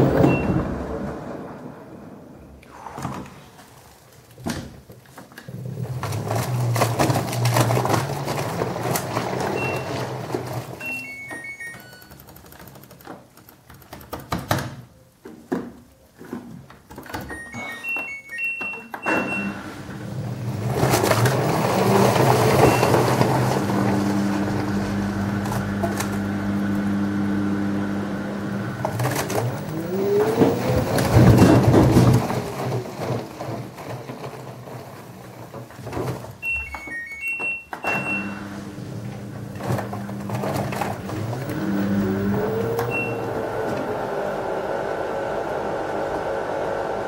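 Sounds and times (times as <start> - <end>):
washing machine motor whine: 0.0 - 2.5, 5.5 - 12.0, 17.3 - 33.4, 36.4 - 47.0
electronic beeps: 10.8 - 12.2, 17.3 - 19.6, 36.4 - 38.4
laundry tumbling in drum: 28.5 - 36.4.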